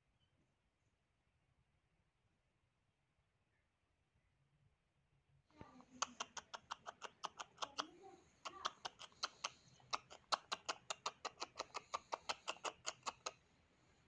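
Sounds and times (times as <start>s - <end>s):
faint voice-like sounds: 5.5s - 13.4s
rapid sharp clicks: 6.0s - 13.4s.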